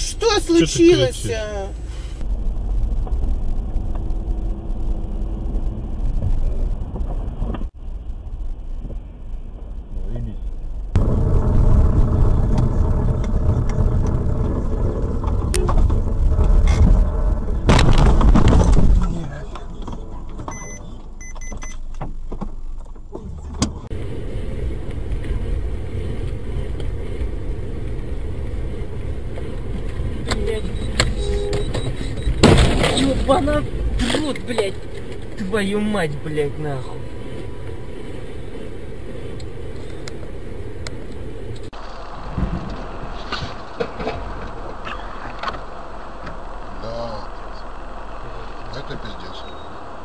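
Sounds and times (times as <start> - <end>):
car engine and tyre rumble: 0.0 - 50.0
short high beeps: 20.5 - 21.8, 30.5 - 32.4.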